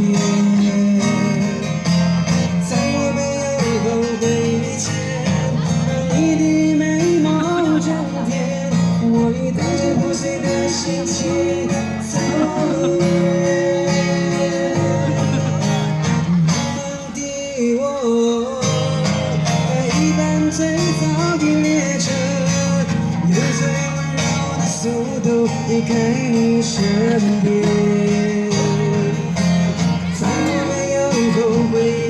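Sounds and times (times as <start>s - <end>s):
person singing into a microphone: 0.0s - 32.0s
strummed acoustic guitar: 0.0s - 32.0s.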